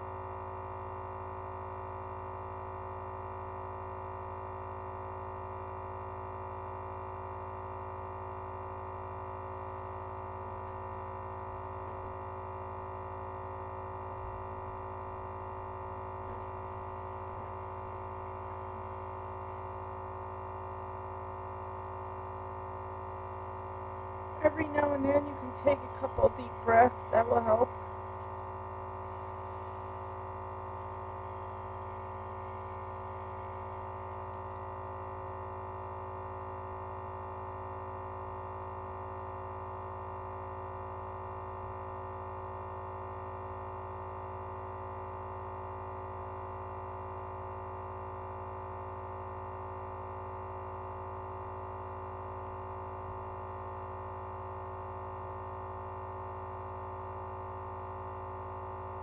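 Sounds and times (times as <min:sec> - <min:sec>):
air compressor humming: 0:09.0 - 0:37.7.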